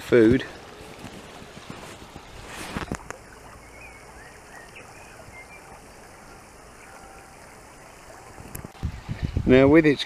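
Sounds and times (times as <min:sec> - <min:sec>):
shallow river running over gravel: 0:00.0 - 0:10.0
faint small bird chirps: 0:03.1 - 0:08.3.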